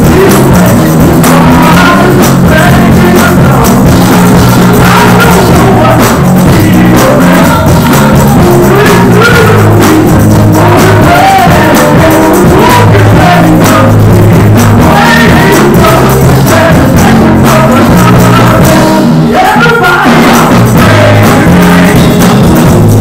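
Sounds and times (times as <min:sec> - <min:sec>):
bass line: 0:00.0 - 0:23.0
drums: 0:00.0 - 0:23.0
tambourine: 0:00.0 - 0:23.0
vocal group singing gospel: 0:00.0 - 0:23.0.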